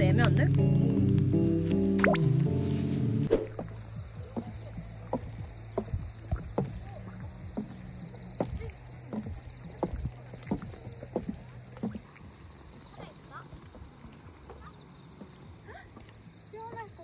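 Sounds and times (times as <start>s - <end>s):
footsteps on wooden stairs: 3.4s - 17.0s.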